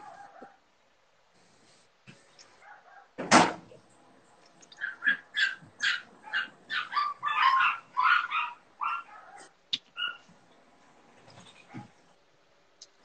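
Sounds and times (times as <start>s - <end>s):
dog barking and yipping: 0.0s - 0.6s, 2.6s - 3.2s, 4.7s - 10.3s.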